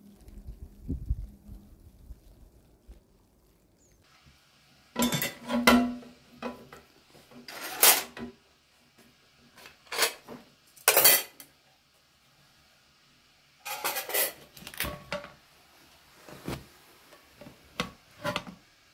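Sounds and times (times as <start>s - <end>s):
pot and lid clanking: 5.0s - 6.8s, 7.4s - 8.4s, 9.6s - 11.4s, 13.6s - 15.4s, 17.8s - 18.6s.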